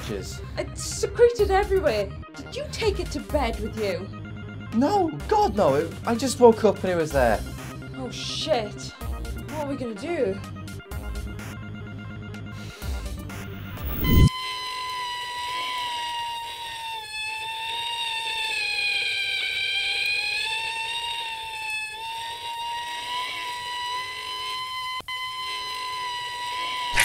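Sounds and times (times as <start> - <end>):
high-pitched wavering held tone: 13.4 - 15.8, 17.1 - 27.0.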